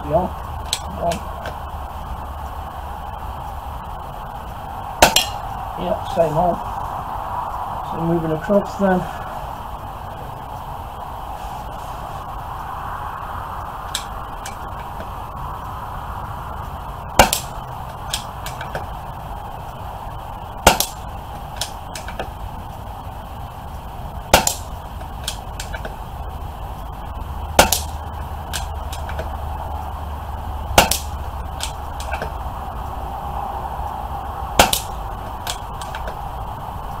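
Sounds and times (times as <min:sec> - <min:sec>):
pellet clicking on metal target: 0:05.0 - 0:05.5, 0:17.2 - 0:18.9, 0:20.6 - 0:21.0, 0:24.3 - 0:26.0, 0:27.6 - 0:29.3, 0:30.7 - 0:32.4, 0:34.6 - 0:36.2
air rifle shots: 0:05.0 - 0:05.6, 0:13.9 - 0:15.2, 0:17.1 - 0:19.0, 0:20.6 - 0:22.4, 0:24.3 - 0:26.0, 0:27.5 - 0:29.4, 0:30.7 - 0:32.4, 0:34.5 - 0:36.2.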